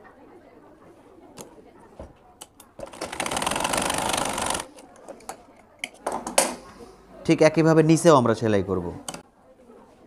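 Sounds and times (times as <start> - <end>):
sewing machine stitching: 2.8 - 4.7.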